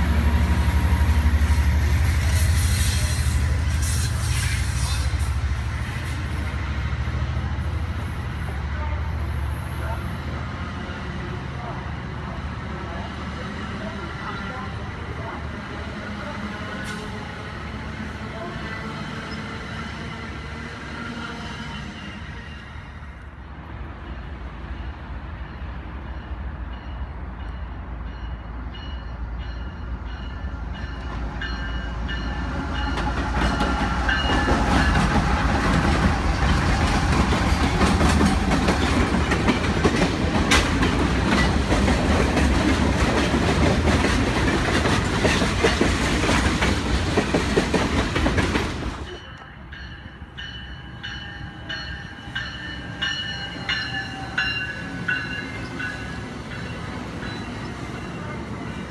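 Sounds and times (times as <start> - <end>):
diesel locomotive running: 0.0 - 58.9
train wheels clacking on rails: 29.4 - 58.9.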